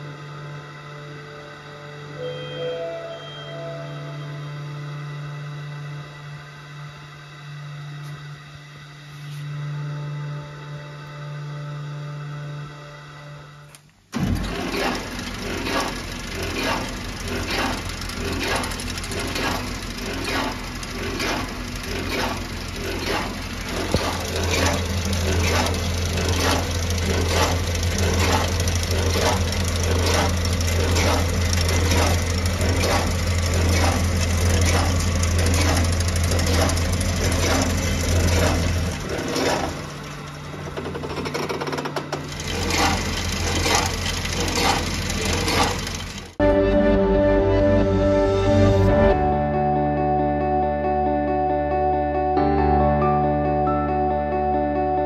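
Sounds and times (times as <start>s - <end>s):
low steady hum: 0.0s - 14.6s
bandsaw running with ticking: 14.2s - 46.4s.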